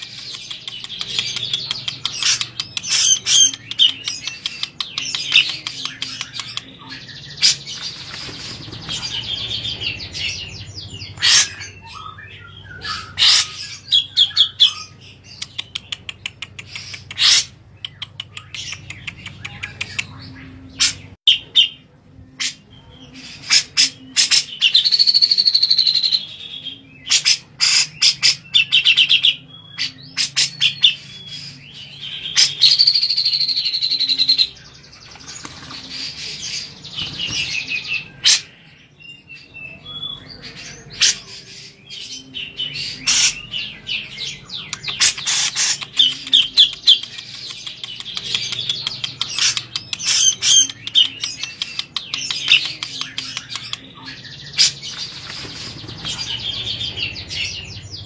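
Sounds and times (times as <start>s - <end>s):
bulbul chattering: 0.0s - 21.8s, 42.2s - 58.0s.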